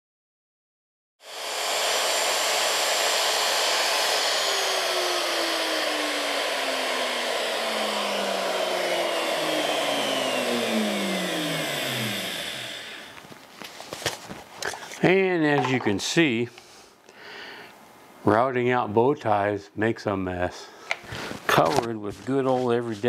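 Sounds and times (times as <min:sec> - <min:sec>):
router running and winding down: 0:01.2 - 0:13.2.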